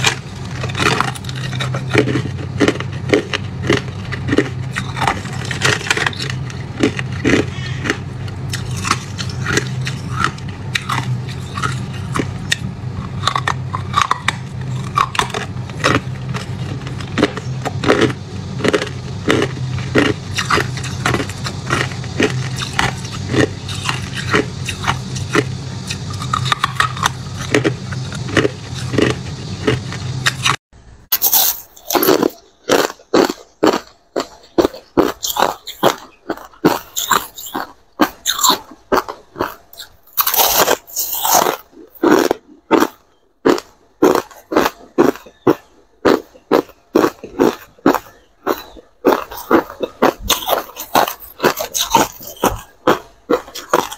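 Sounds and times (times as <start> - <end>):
low hum: 0.0 - 32.7
ice being chewed: 0.0 - 53.9.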